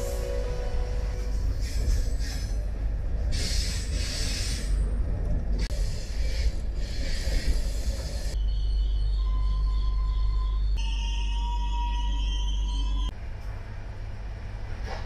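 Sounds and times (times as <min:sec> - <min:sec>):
rail and wind noise: 0:00.0 - 0:08.4, 0:12.8 - 0:15.0
train rumbling on rails: 0:00.0 - 0:10.8.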